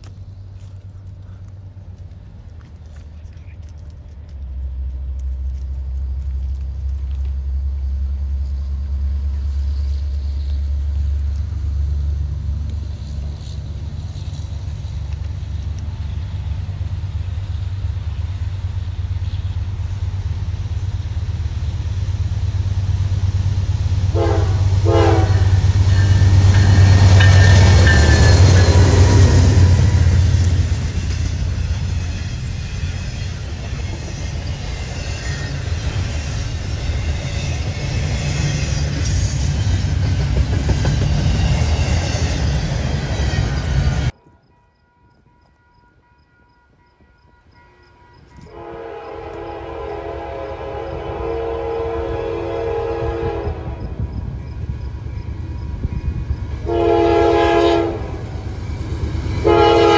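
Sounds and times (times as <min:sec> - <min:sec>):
locomotive engine rumble: 0:00.0 - 0:44.5
wheels rolling on rail: 0:00.0 - 0:51.2, 0:51.8 - 0:59.9
locomotive horn blasts: 0:24.1 - 0:30.0, 0:47.7 - 0:53.9, 0:56.6 - 0:58.4, 0:59.4 - 0:59.9.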